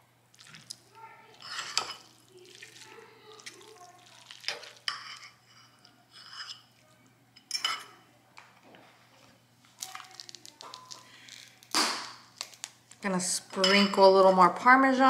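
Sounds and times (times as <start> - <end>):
fork stirring pasta in bowl: 0.4 - 6.8.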